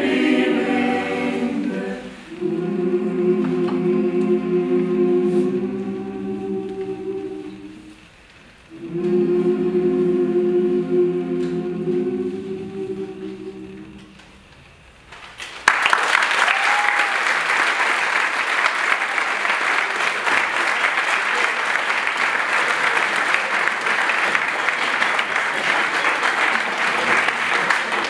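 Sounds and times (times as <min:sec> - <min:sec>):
choir singing chord: 0:00.0 - 0:08.0, 0:08.7 - 0:14.3
audience applauding: 0:15.4 - 0:28.0.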